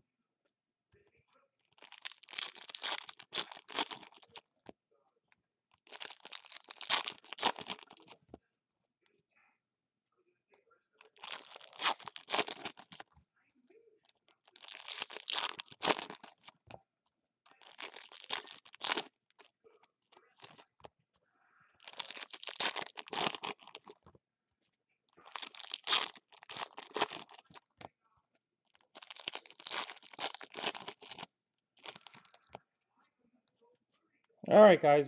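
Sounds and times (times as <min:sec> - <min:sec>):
foil wrappers tearing and crinkling: 0:01.8 - 0:04.4, 0:05.8 - 0:08.2, 0:11.1 - 0:13.0, 0:14.5 - 0:16.5, 0:17.5 - 0:19.1, 0:21.8 - 0:24.0, 0:25.2 - 0:27.7, 0:28.8 - 0:32.4.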